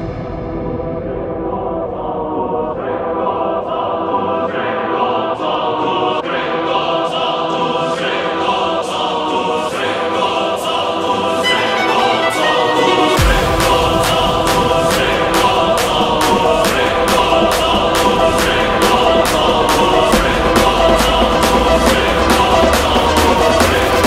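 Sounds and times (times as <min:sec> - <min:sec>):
choir singing held chords: 0:00.0 - 0:24.0
orchestra playing: 0:11.4 - 0:13.5
steady beat: 0:11.4 - 0:24.0.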